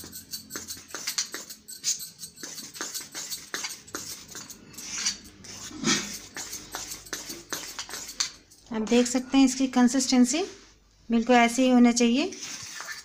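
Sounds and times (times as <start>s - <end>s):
metal spoon stirring batter in bowl: 0.0s - 9.3s, 12.4s - 13.0s.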